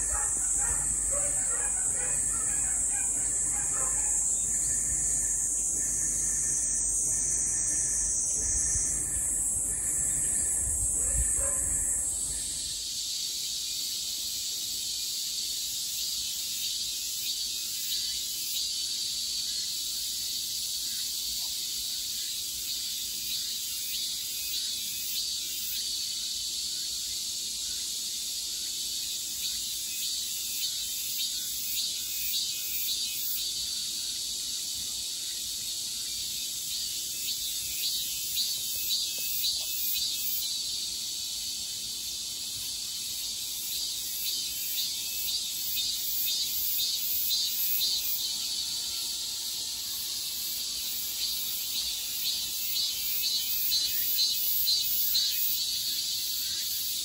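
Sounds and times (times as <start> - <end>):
insect high hiss: 0.0 - 57.0
pulsed insect calls: 0.0 - 57.0.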